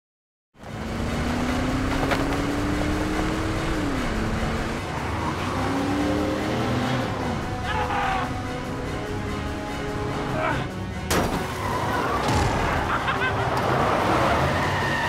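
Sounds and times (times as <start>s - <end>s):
car engine accelerating: 0.6s - 10.4s
road noise: 0.6s - 15.0s.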